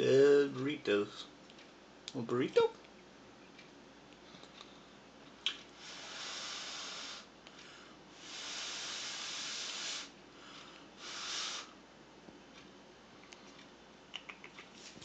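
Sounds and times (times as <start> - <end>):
breathy hisses of exhaled air: 5.8 - 11.8.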